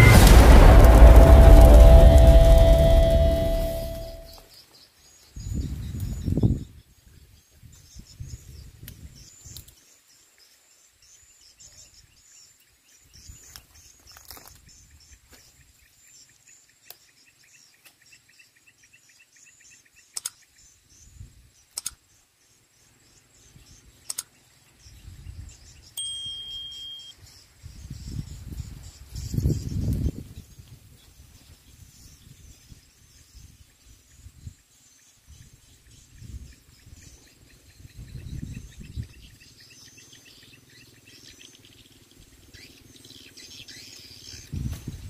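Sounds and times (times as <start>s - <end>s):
low rumbling bursts: 0.0s - 4.4s
insects and birds trilling: 3.1s - 45.0s
sharp clicks: 20.1s - 20.4s, 21.7s - 22.0s, 24.0s - 24.3s.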